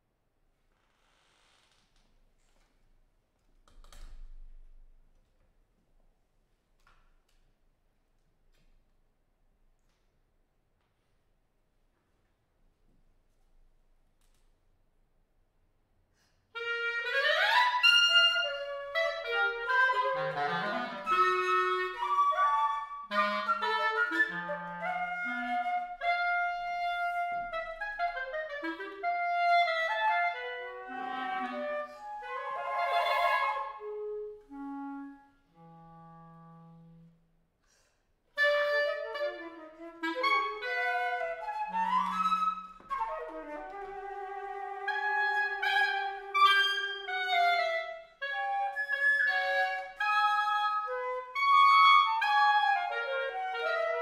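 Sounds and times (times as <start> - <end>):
flute: 16.6 - 37.2, 38.4 - 54.0
clarinet: 16.6 - 37.3, 38.3 - 54.0.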